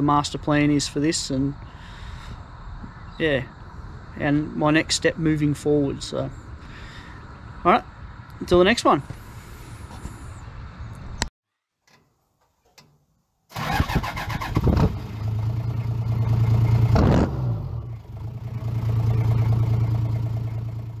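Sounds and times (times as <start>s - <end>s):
vehicle engine starting and running: 13.5s - 21.0s.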